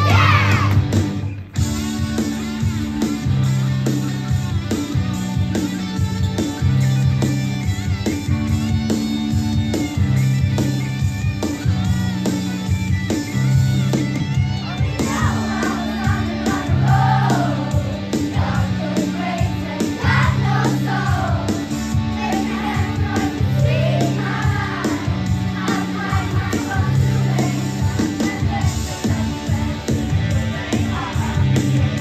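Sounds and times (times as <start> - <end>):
bass line: 0.0 - 32.0
steady drum beat: 0.0 - 32.0
voices singing together: 15.0 - 32.0.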